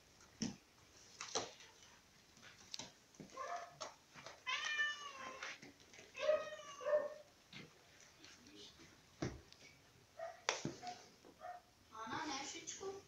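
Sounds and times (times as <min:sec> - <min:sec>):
cat meowing: 0:04.4 - 0:05.6, 0:06.2 - 0:07.3.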